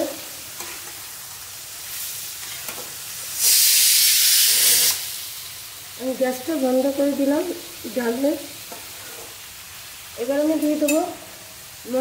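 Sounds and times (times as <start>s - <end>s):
beans sizzling in a pan: 0.0s - 12.0s
pressure cooker whistle hissing: 3.4s - 5.2s
spatula scraping a pan: 8.7s - 9.4s.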